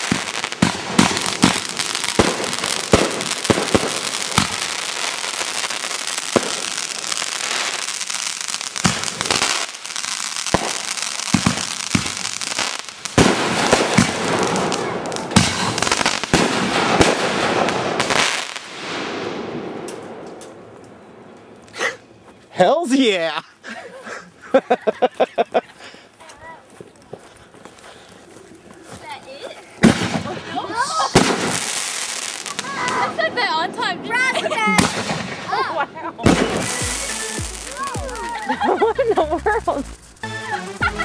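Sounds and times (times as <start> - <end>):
fireworks bangs: 0.0 - 20.9, 29.8 - 41.0
fireworks crackling: 0.0 - 21.8, 26.4 - 41.0.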